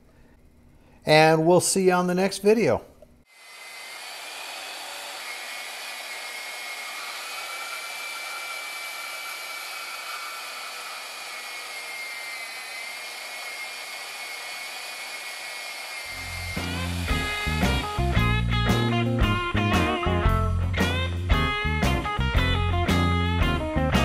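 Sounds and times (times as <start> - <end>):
bandsaw cutting steel: 3.3 - 18.9
rock guitar music: 16.6 - 24.0.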